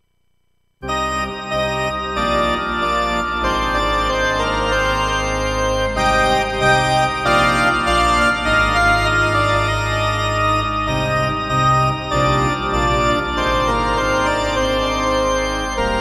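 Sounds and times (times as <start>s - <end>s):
synthesizer playing organ chords: 0.8s - 16.0s.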